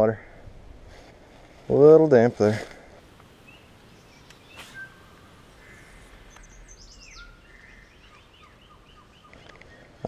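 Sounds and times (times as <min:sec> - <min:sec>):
faint birdsong: 0:02.9 - 0:10.0
faint click: 0:04.2 - 0:04.8, 0:06.3 - 0:06.6.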